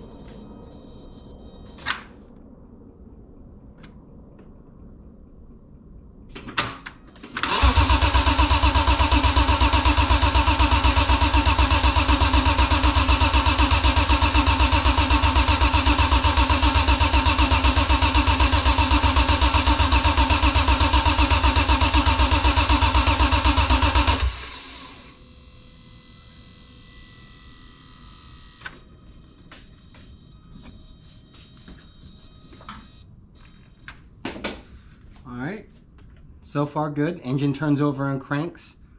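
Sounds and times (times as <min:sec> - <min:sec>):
engine cranking on starter motor: 0:06.3 - 0:25.2.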